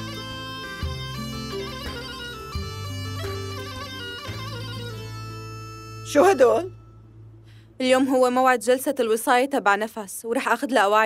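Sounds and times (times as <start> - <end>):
wind instrument melody over drone: 0.0 - 7.2.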